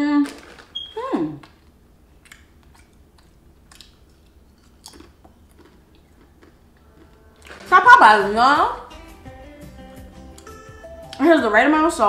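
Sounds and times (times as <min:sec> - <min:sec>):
person chewing crisp chips: 0:00.2 - 0:07.8.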